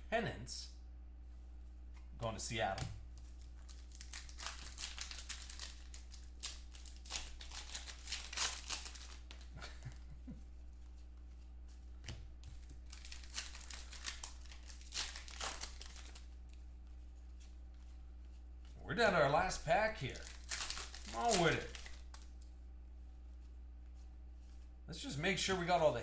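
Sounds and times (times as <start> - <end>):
low electrical hum: 0.0 - 26.0
foil wrapper crinkling: 3.2 - 10.0, 12.5 - 16.6, 19.6 - 22.5.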